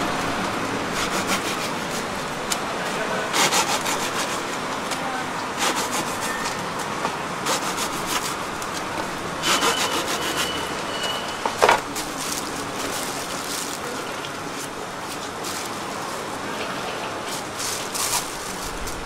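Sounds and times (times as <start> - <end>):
knife sawing through bread crust: 0.9 - 2.2, 3.2 - 4.6, 5.6 - 6.6, 7.4 - 8.6, 9.4 - 10.8.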